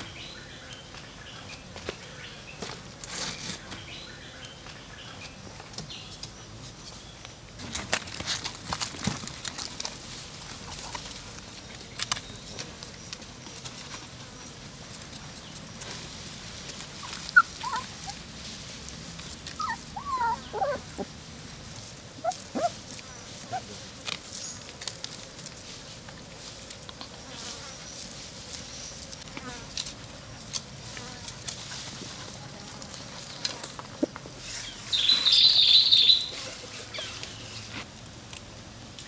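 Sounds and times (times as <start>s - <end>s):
puppies whimpering: 17.0s - 18.2s, 19.5s - 21.2s, 22.2s - 22.8s, 23.4s - 23.8s.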